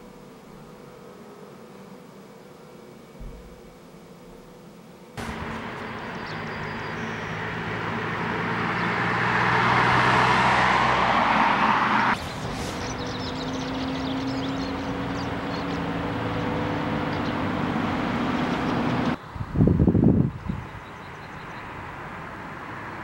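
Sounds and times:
excavator diesel engine running: 5.2s - 8.3s
car driving past: 5.2s - 19.2s.

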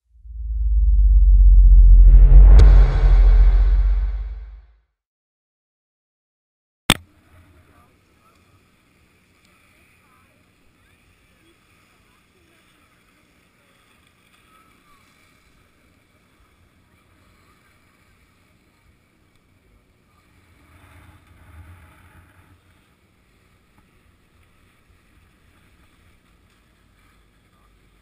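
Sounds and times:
low rumble of lift tower: 0.0s - 4.6s.

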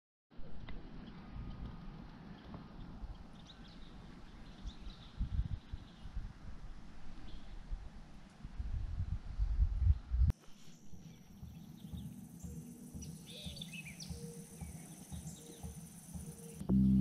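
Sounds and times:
faint bird chirps: 10.4s - 17.0s
low rumbling noise: 16.2s - 17.0s.

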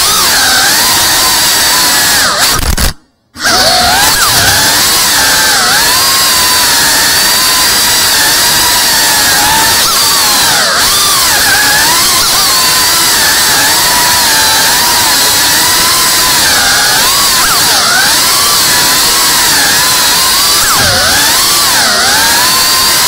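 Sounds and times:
drone propellers whining: 0.0s - 23.0s.

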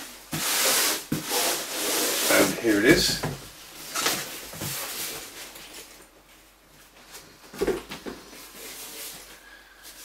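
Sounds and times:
rustling and scraping of fabric: 0.0s - 10.0s.

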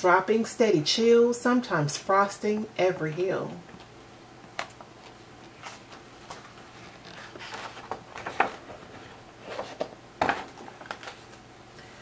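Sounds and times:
book page turning: 4.6s - 11.4s
soft paper rustling: 4.6s - 11.4s.

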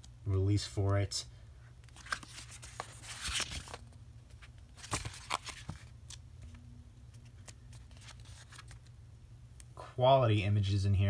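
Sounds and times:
faint low hum: 0.0s - 11.0s
soft paper rustles: 1.8s - 9.0s
paper pages swishing: 1.9s - 3.8s.

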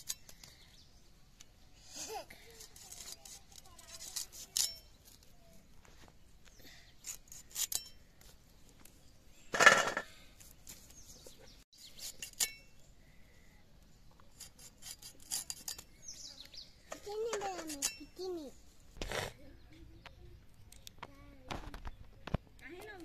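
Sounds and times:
blade clinking: 2.6s - 4.9s, 12.2s - 12.7s
pieces clattering on steel plate: 9.6s - 10.0s.

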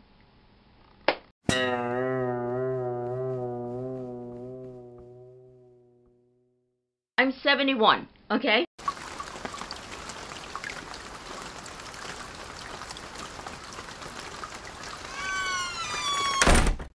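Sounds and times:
fountain water splashing: 8.8s - 15.7s.

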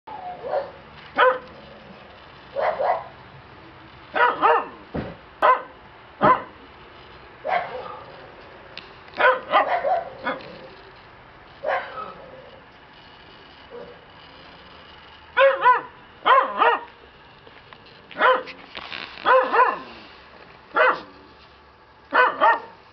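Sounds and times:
puppies barking and yipping: 0.1s - 1.7s, 2.5s - 3.2s, 4.1s - 4.8s, 7.4s - 8.2s, 9.2s - 10.7s, 11.6s - 12.2s, 15.4s - 16.9s, 19.2s - 20.0s.

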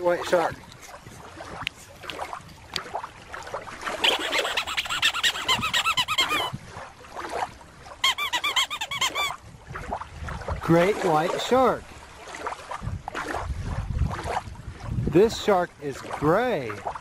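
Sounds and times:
high squeaks rising and falling: 4.0s - 6.5s, 8.0s - 9.4s.

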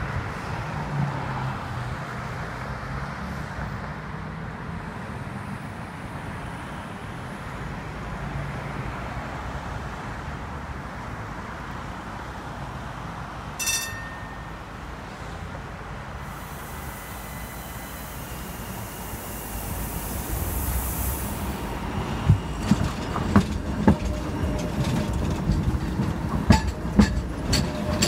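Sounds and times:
road traffic passing: 0.0s - 28.0s
short high-pitched tone: 13.6s - 14.7s.

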